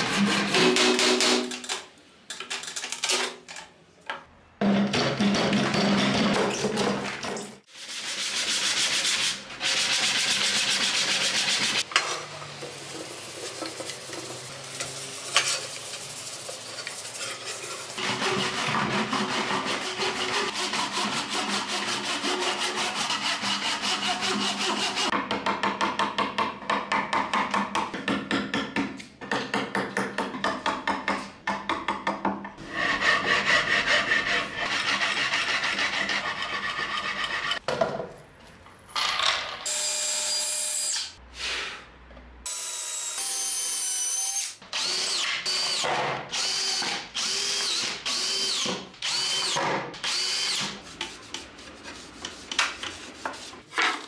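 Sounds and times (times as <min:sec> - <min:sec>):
handsaw cutting wood: 0:17.6 - 0:25.1, 0:32.6 - 0:37.6.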